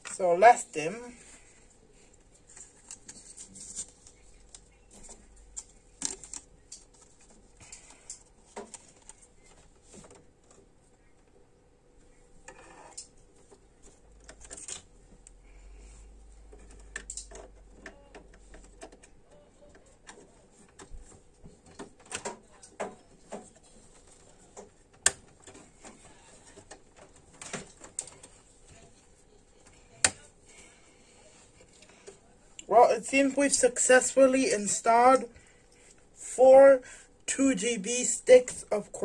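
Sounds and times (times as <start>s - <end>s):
clicks and rattles of computer parts: 2.5s - 10.6s, 12.5s - 14.9s, 16.5s - 28.4s.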